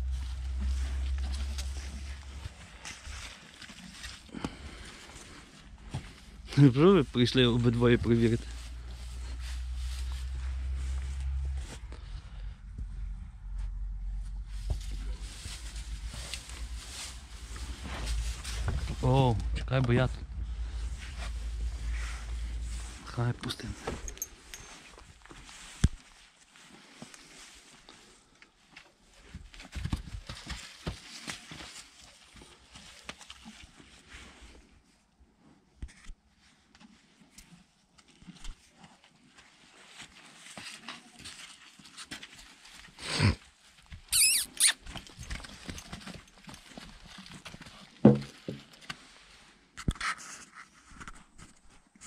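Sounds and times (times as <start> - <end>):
hooves scuffling: 0.0 - 34.7, 36.6 - 43.0, 43.6 - 49.6
horse hooves knocking: 48.0 - 48.8.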